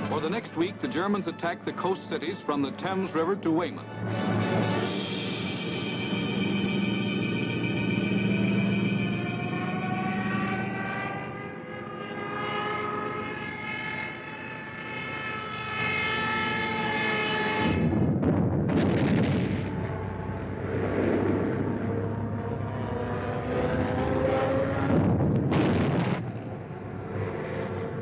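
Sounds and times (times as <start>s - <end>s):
aircraft engines droning: 0.0s - 28.0s
rumbling roar of bombing: 14.0s - 23.2s, 23.8s - 28.0s.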